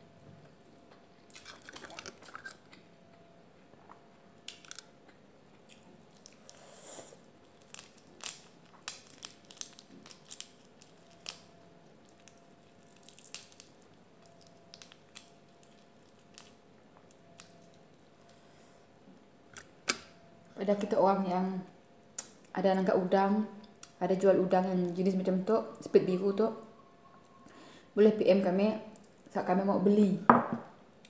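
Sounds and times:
prawn shells cracking: 4.4 - 4.9, 7.4 - 17.8.

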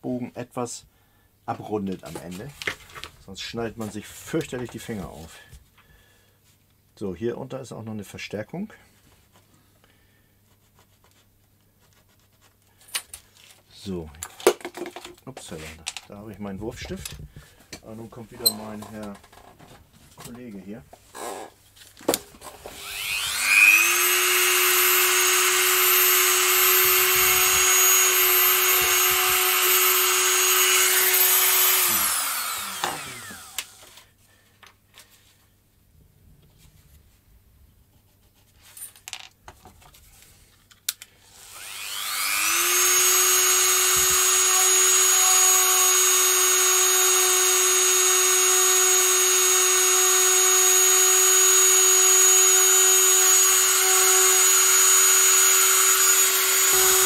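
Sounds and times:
rotary tool whining: 22.4 - 34.0, 41.3 - 57.0.

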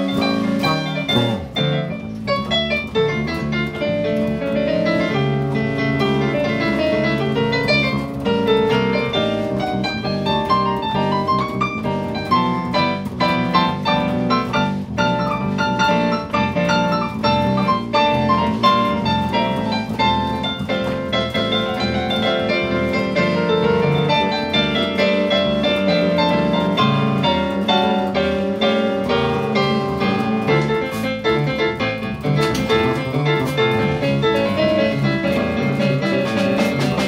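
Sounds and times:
electric bass line: 0.0 - 4.6
keyboard playing piano melody: 0.0 - 37.0.

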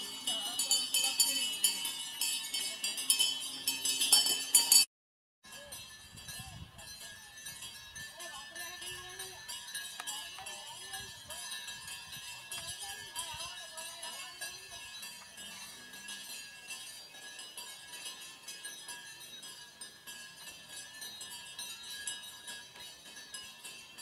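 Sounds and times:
people's voices: 0.0 - 3.6, 5.5 - 17.6
cattle bells jingling: 0.0 - 24.0.

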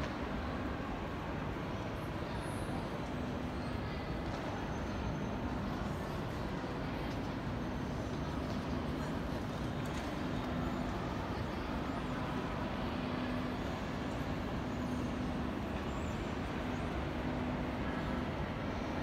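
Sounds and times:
low rumbling hall noise: 0.0 - 19.0.

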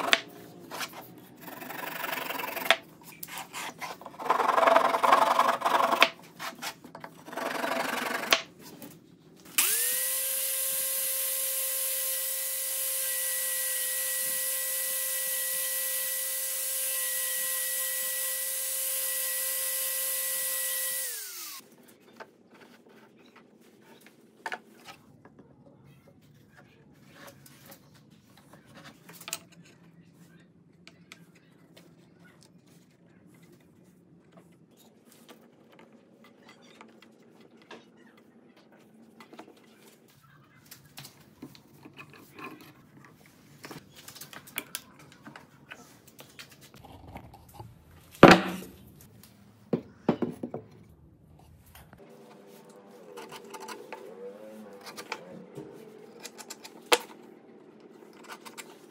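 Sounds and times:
electric sander whining: 9.6 - 21.6.

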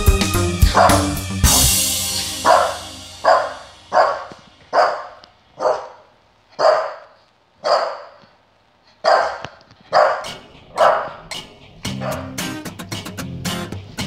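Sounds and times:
dog barking: 0.7 - 1.7, 2.4 - 8.3, 9.0 - 12.4.

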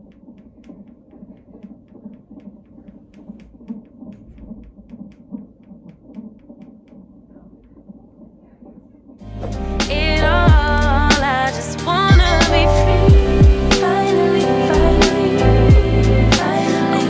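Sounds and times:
fetal heartbeat through doppler: 0.0 - 9.2, 10.5 - 10.8, 12.1 - 12.4, 13.1 - 13.7
low hum: 9.2 - 16.5.

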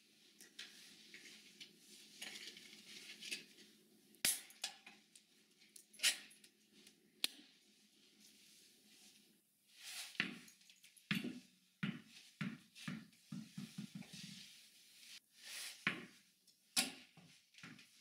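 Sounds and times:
tennis ball bouncing on tile: 11.1 - 14.0.

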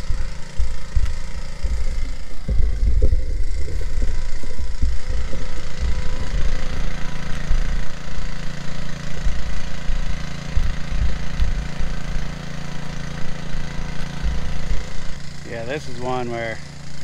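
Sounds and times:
uneven low rumble: 0.0 - 8.0
small gasoline engine running: 0.0 - 17.0.

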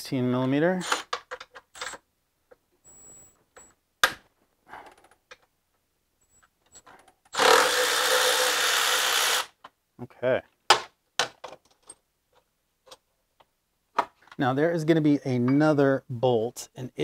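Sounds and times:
power tool running hard: 7.4 - 9.5.

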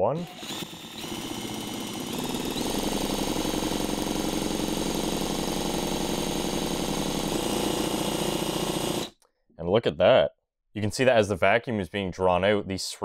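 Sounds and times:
drill motor whine: 0.2 - 9.1.

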